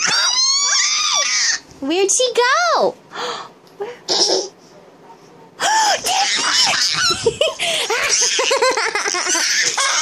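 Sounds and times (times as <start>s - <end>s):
toddler giggling: 6.0s - 10.0s.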